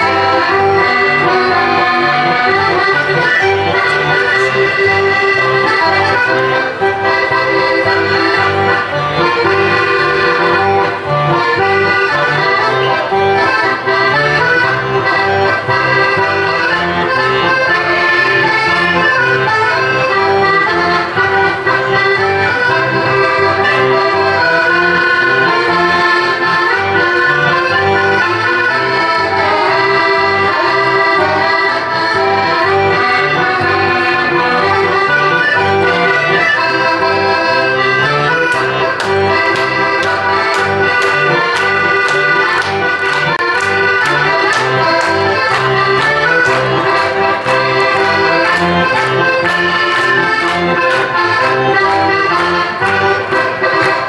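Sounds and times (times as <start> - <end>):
accordion folk-dance music: 0.0 - 54.0
sharp hand claps: 38.5 - 54.0.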